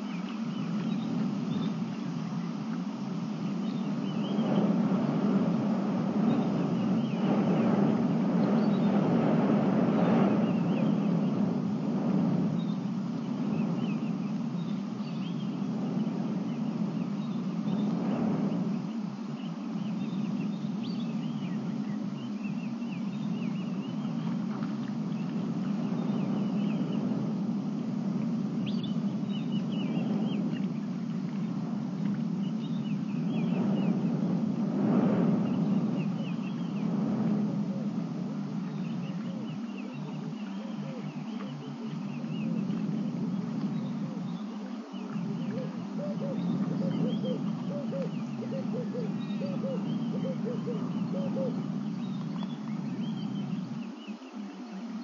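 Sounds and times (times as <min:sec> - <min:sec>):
steady low hum: 0:00.0 - 0:55.0
steady low rumble: 0:00.0 - 0:55.0
wild birds chirping: 0:38.6 - 0:55.0.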